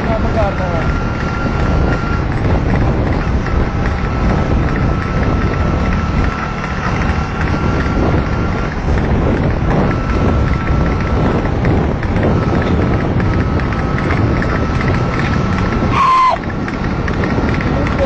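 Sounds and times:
moving vehicle rumble: 0.0s - 18.0s
wind buffeting microphone: 0.0s - 18.0s.

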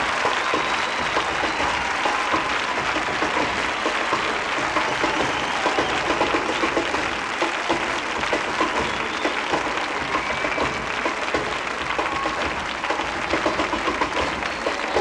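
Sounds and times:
large audience applauding: 0.0s - 15.0s.

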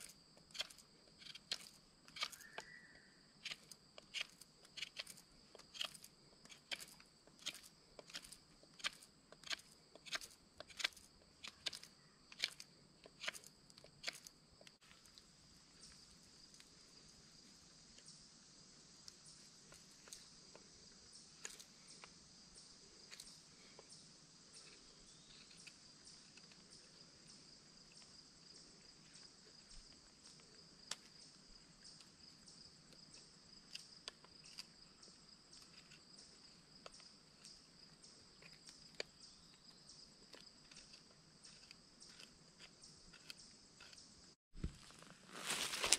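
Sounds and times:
high-pitched insect chorus: 2.2s - 4.5s, 14.2s - 40.2s, 44.8s - 45.9s.

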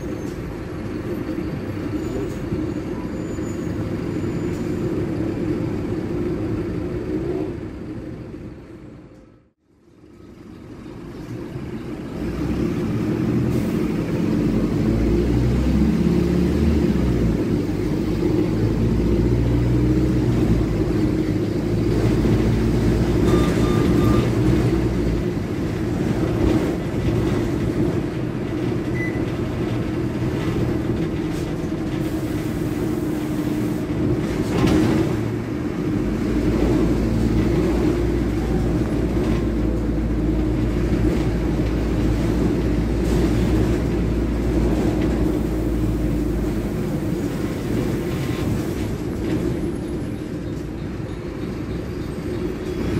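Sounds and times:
bus diesel engine: 0.0s - 52.9s
short beep: 23.2s - 24.4s.

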